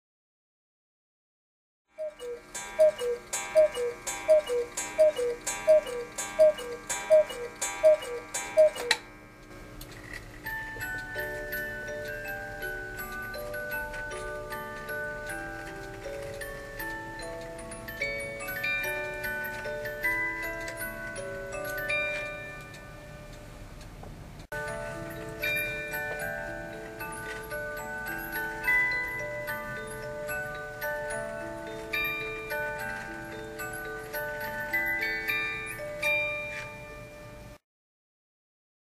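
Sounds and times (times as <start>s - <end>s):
cuckoo clock calls: 2.0s - 9.2s
music box tune: 2.0s - 9.5s, 10.3s - 23.6s, 24.5s - 37.6s.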